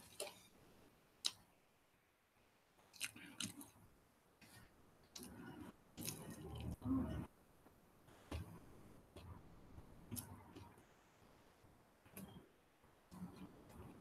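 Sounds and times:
person chewing food: 2.9 - 3.8, 4.5 - 6.8.

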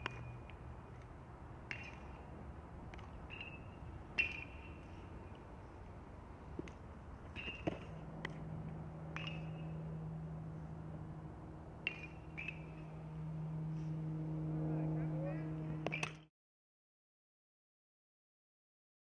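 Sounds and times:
open field background noise: 0.0 - 16.3
steady low hum: 0.0 - 16.3
metal bat hitting baseball: 9.1 - 9.8, 11.8 - 12.8.

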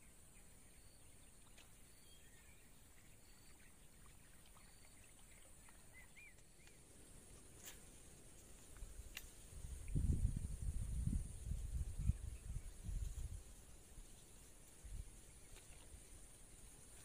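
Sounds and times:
soft bird chirps: 0.0 - 7.8
light click: 9.1 - 9.4.

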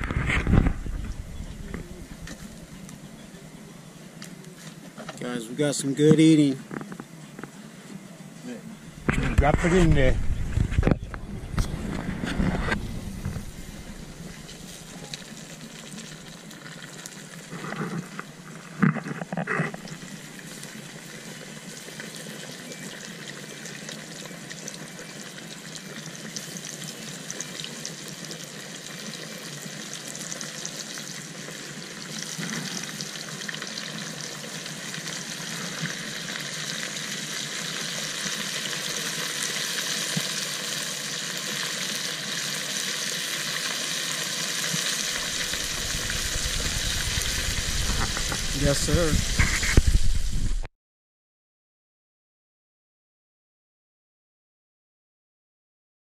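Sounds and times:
fish sizzling in hot oil: 0.0 - 3.6, 12.3 - 50.7.

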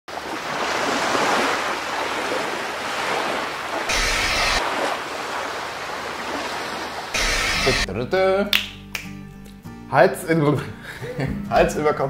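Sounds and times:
static hiss burst: 3.9 - 4.6, 7.1 - 7.9
steady rushing noise: 3.9 - 4.7.

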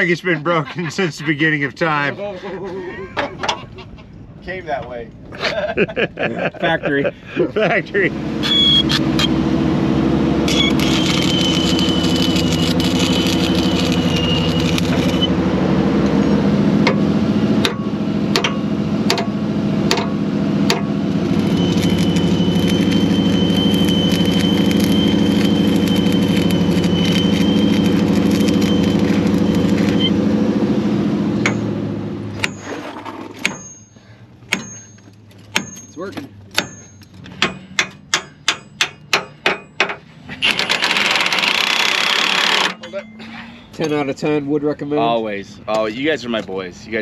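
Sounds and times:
engine running: 5.1 - 47.0
high cutting whine: 7.9 - 32.7.

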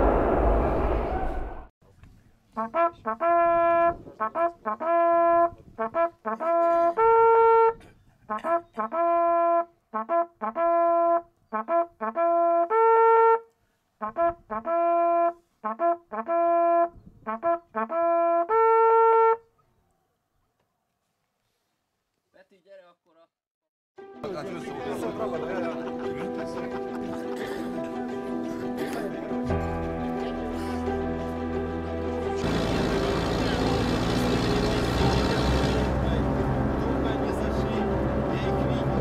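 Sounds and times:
hunting horn signal: 32.4 - 36.5.

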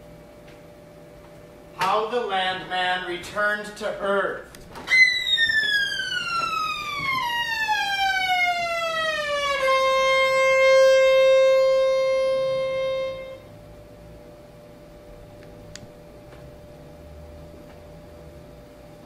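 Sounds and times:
buzzy falling-pitch tone: 4.9 - 13.5.

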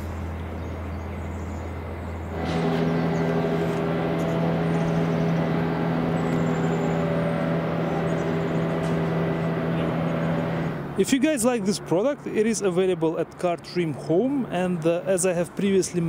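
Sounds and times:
steady constant-pitch drone: 0.0 - 10.8
vehicle hum: 0.0 - 16.0.

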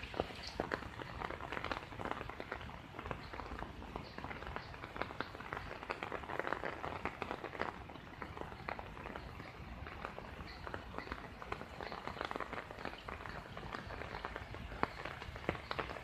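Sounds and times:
rain falling on floodwater: 0.0 - 16.0
water drops splashing: 0.0 - 16.0.

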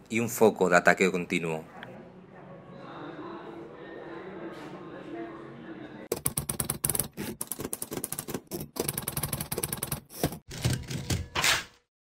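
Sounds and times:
typewriter keys clacking: 6.1 - 11.2.

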